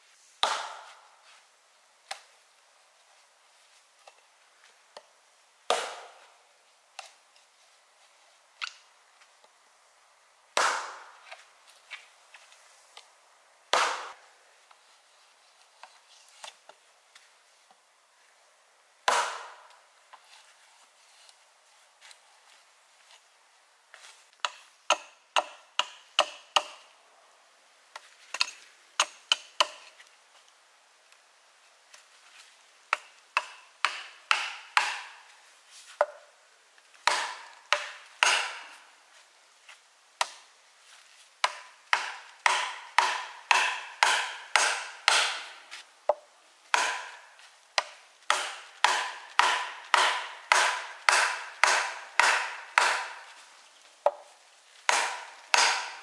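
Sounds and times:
hatchet knocking on wooden wedge: 0:32.9 - 0:35.1, 0:37.1 - 0:38.6, 0:41.4 - 0:45.4, 0:46.1 - 0:47.2, 0:47.8 - 0:53.2, 0:54.9 - 0:56.0.

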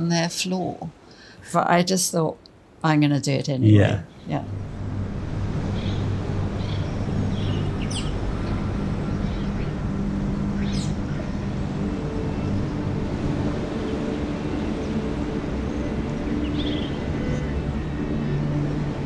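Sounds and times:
low mechanical hum: 0:03.5 - 0:19.0
birds chirping: 0:05.7 - 0:09.8, 0:10.5 - 0:12.9, 0:16.1 - 0:17.6.

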